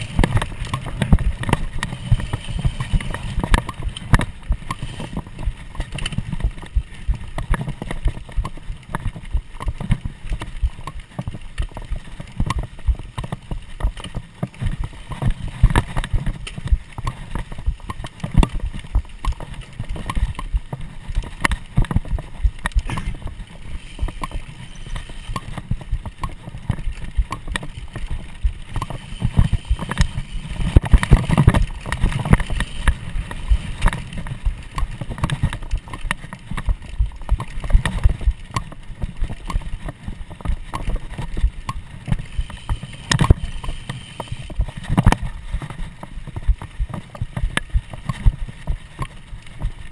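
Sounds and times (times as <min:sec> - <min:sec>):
bike and camera rattling: 0:00.0 - 0:49.9
low rumble of tyres: 0:00.0 - 0:49.9.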